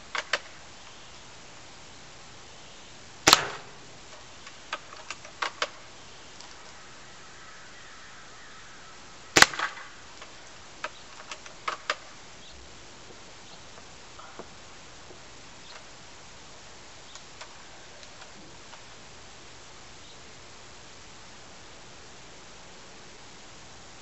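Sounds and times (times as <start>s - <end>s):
airsoft rifle cracks: 3.3s - 3.8s, 9.4s - 12.1s.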